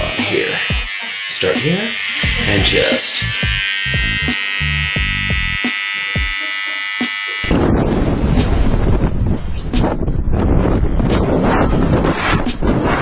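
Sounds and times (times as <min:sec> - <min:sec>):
electric hair clipper buzzing: 0:00.0 - 0:07.5
wind blasting across microphone: 0:07.5 - 0:13.0.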